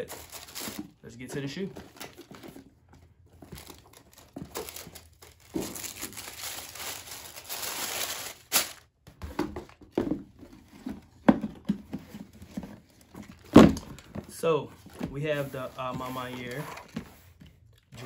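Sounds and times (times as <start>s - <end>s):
tissue paper and plastic crinkling: 0.0s - 1.0s, 3.4s - 8.9s.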